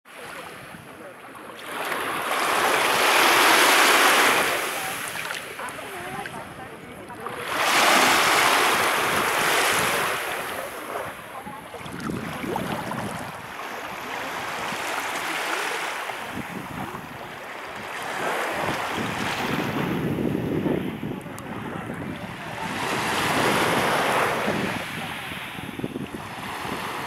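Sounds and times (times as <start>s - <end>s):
small waves washing over sand: 0.1s - 27.0s
wind rumbling on microphone: 4.3s - 15.2s, 16.2s - 27.0s.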